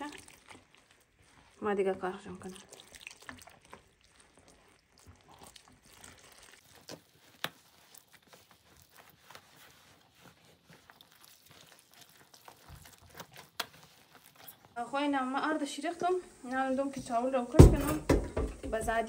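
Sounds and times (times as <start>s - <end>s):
hands kneading dough in bowl: 0.0s - 19.0s.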